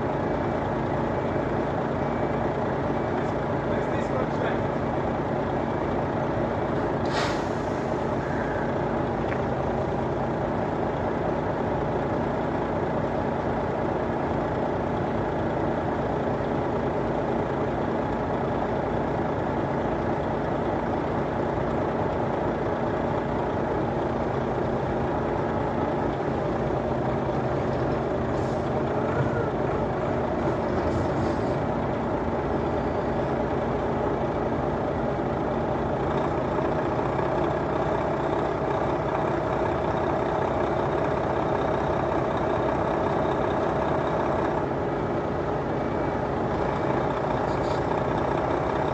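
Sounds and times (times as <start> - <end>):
heavy vehicle engine running: 0.0 - 48.9
brief high hiss: 7.1 - 7.8.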